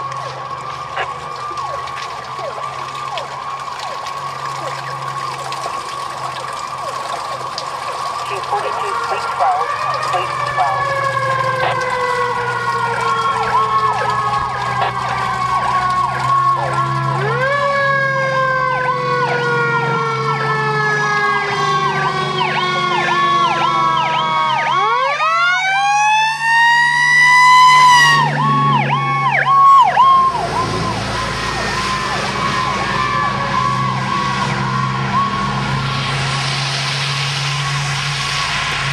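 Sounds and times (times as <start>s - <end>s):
electronic siren yelp: 0.0s - 38.9s
siren wail: 0.0s - 38.9s
truck engine rumble: 0.0s - 38.9s
tyres hissing on wet road: 26.5s - 38.9s.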